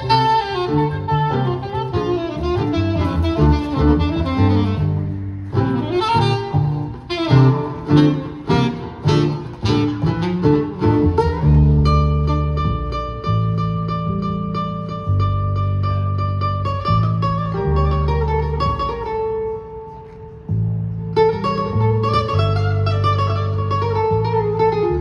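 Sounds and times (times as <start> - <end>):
live jazz band: 0.0 - 25.0
plucked guitar notes: 0.0 - 25.0
long low bass note: 2.4 - 8.5.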